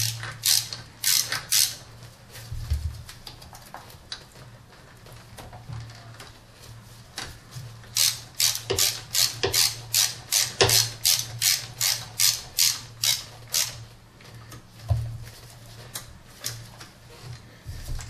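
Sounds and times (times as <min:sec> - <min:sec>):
ratchet wrench clicking: 0:00.0 - 0:01.8, 0:08.0 - 0:13.8.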